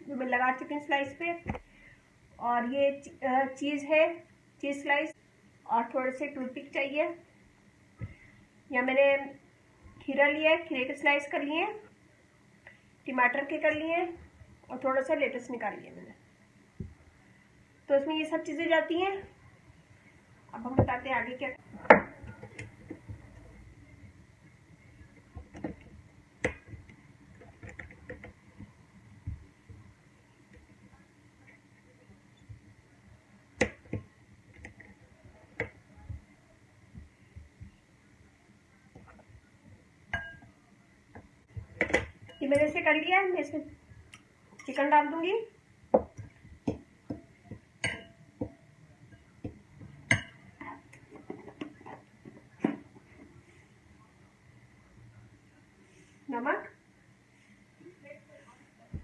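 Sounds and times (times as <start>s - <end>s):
fork clinking in glass bowl: 47.8s - 48.2s.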